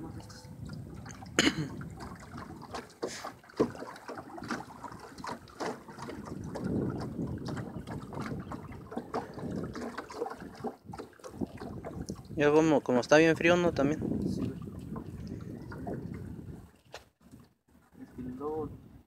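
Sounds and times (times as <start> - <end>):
water splashing and dripping: 0.0 - 18.4
knocks against boat: 1.4 - 10.2.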